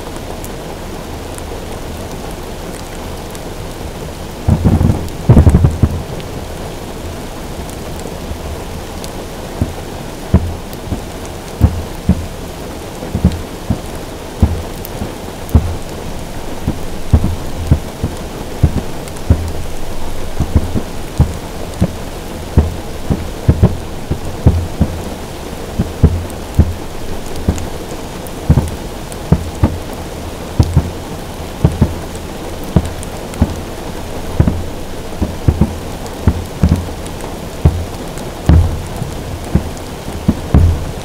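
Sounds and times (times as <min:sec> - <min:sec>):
rain on a car roof: 0:00.0 - 0:41.0
firework booms: 0:04.4 - 0:06.2, 0:13.1 - 0:25.1, 0:34.3 - 0:37.0, 0:37.6 - 0:41.0.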